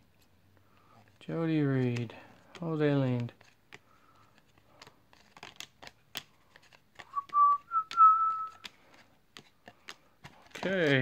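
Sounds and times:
cards flicking by hand: 4.8s - 11.0s
person whistling: 7.1s - 8.6s.

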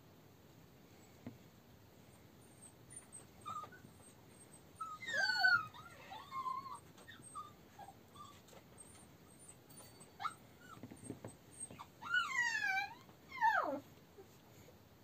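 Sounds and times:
puppies squealing and yipping: 2.5s - 13.8s.

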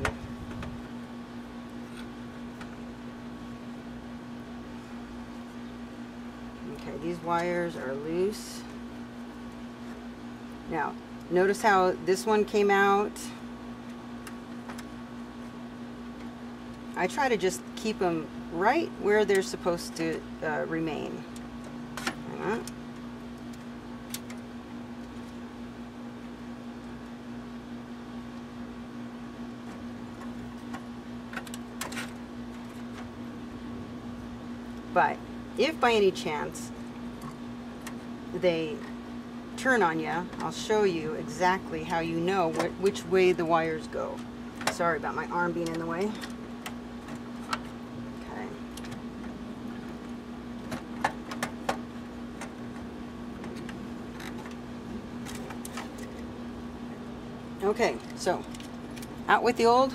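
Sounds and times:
steady low hum: 0.0s - 59.9s
clicks and scrapes of wires: 1.7s - 2.7s, 29.6s - 33.1s, 52.4s - 54.6s, 55.2s - 56.3s, 57.9s - 59.2s.

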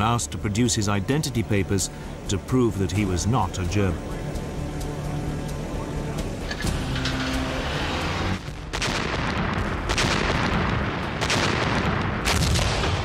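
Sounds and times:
artillery shells bursting: 6.6s - 13.0s.

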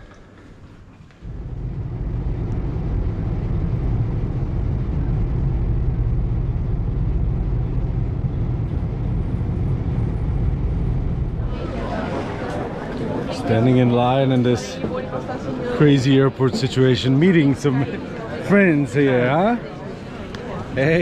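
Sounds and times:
car road and engine rumble: 1.2s - 11.6s.

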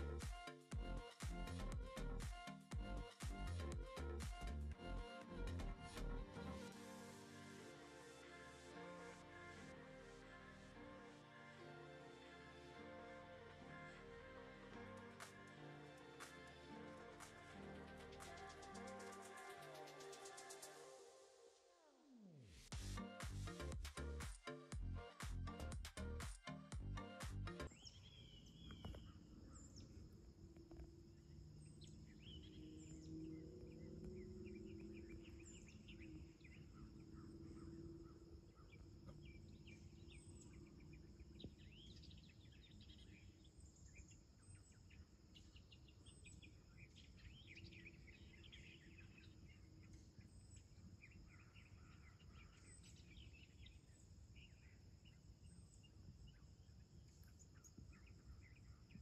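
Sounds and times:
bird chirps: 27.7s - 30.0s
insects droning: 28.8s - 43.2s.

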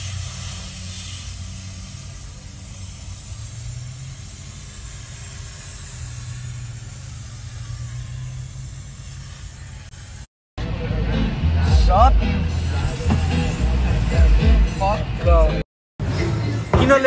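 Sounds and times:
even hiss: 0.0s - 10.3s.

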